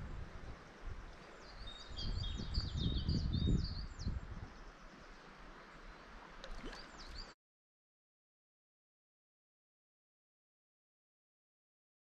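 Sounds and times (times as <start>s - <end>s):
wind rumble on microphone: 0.0s - 6.0s.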